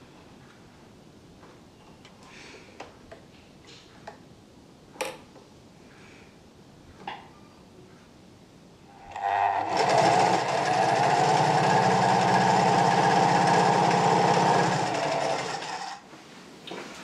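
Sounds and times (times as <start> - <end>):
sewing machine stitching: 9.0 - 16.0.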